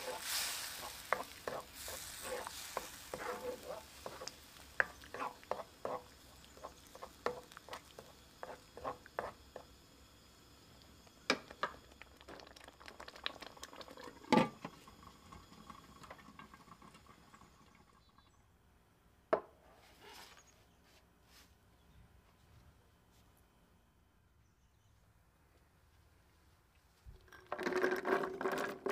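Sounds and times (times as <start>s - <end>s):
sauce bubbling and popping: 0.0s - 18.3s.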